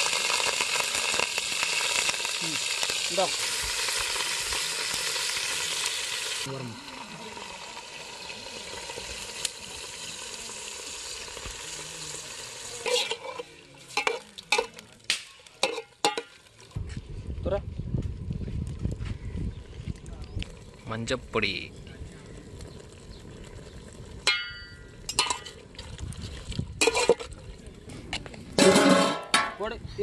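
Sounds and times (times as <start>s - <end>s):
meat sizzling in oil: 0.0s - 16.4s
metal ladle scraping pot: 12.8s - 14.8s, 15.6s - 16.4s, 24.2s - 27.4s, 28.6s - 29.6s.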